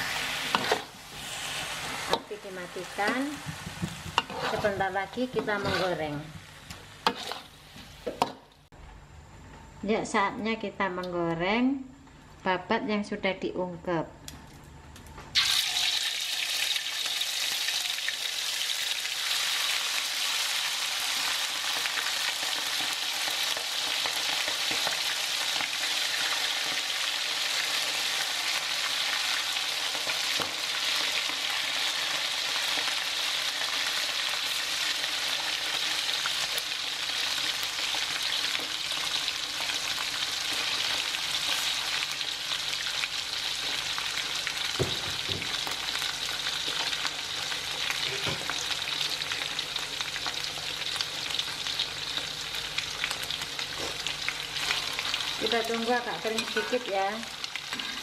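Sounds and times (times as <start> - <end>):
food sizzling in hot oil: 0.0 - 8.7, 15.4 - 58.0.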